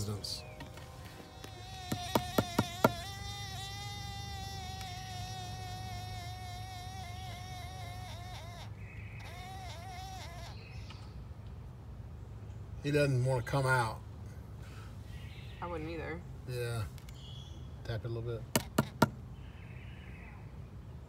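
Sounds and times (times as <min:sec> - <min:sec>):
bee buzzing in wood tunnel: 0:00.0 - 0:10.8.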